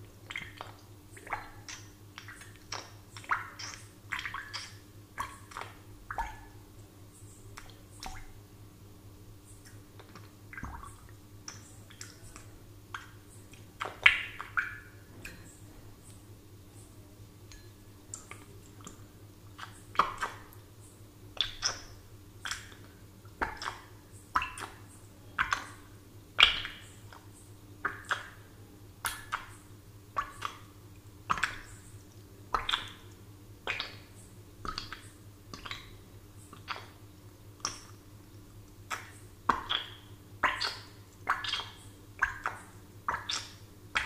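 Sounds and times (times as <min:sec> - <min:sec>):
bubbles plopping in water: 0:10.1 - 0:11.2.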